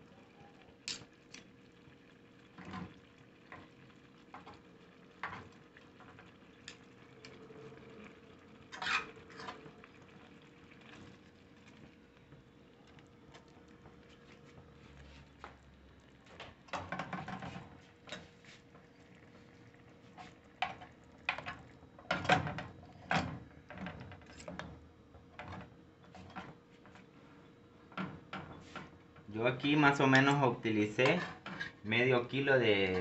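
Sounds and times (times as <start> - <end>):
fork scraping frying pan: 8.7 - 9.6, 31.0 - 31.8.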